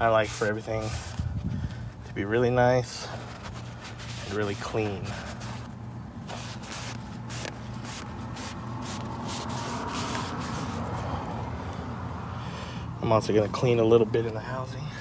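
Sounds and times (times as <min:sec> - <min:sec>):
paper towels rubbing and rustling: 0:00.0 - 0:01.4, 0:02.8 - 0:11.2
steady low hum: 0:00.0 - 0:15.0.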